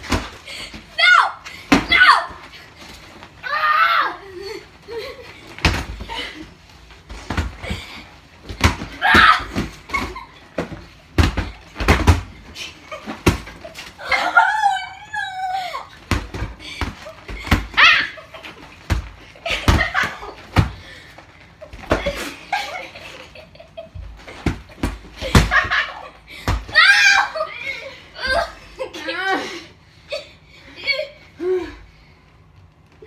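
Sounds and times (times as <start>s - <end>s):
girl squealing: 1.0s - 2.4s, 3.4s - 4.6s, 8.9s - 9.6s, 14.0s - 16.0s, 17.7s - 18.2s, 26.7s - 27.6s
girls laughing: 3.8s - 6.9s, 8.8s - 11.7s, 12.4s - 31.4s
thumps of bodies and pillows: 5.4s - 6.1s, 6.8s - 14.0s, 23.9s - 25.9s.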